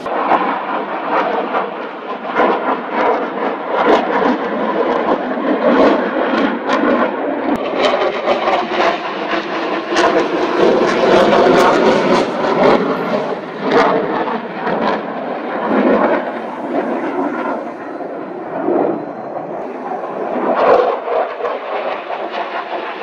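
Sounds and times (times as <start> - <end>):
jet engine roar with crackles: 0.0 - 23.0.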